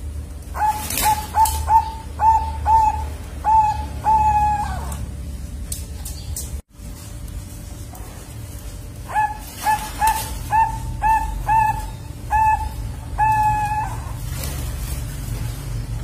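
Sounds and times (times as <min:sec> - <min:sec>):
dove cooing: 0:00.5 - 0:05.2, 0:09.0 - 0:15.0.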